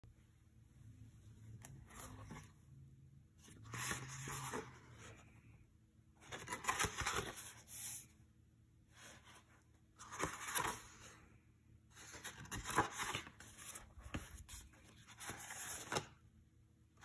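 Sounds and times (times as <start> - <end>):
paper rustling: 6.2 - 8.1, 11.9 - 16.2.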